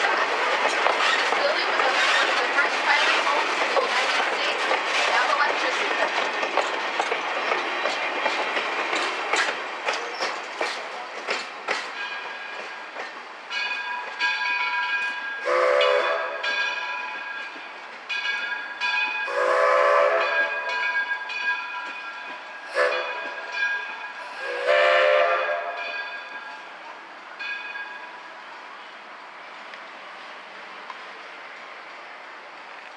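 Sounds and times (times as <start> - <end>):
wheels clicking over rail joints: 0.0 - 15.2
locomotive bell ringing: 11.8 - 28.4
steam whistle blasts: 15.4 - 16.4, 19.3 - 20.6, 22.7 - 23.2, 24.3 - 25.8.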